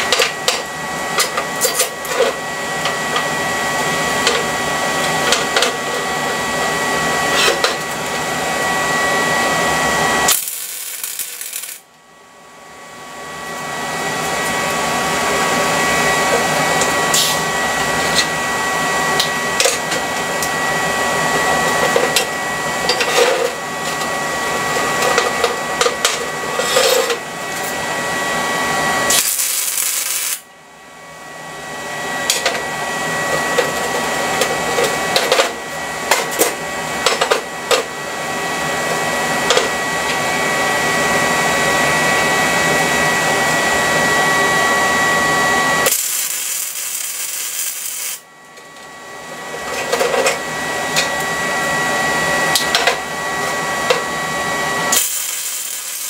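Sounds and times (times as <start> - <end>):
thin high whine: 0.0 - 30.6, 39.4 - 49.6, 50.2 - 56.0
sharp welding pops: 10.3 - 11.8, 29.1 - 30.4, 45.9 - 48.2, 55.0 - 56.0
welding arc crackling: 10.3 - 11.9, 29.1 - 30.4, 45.8 - 48.2, 54.9 - 56.0.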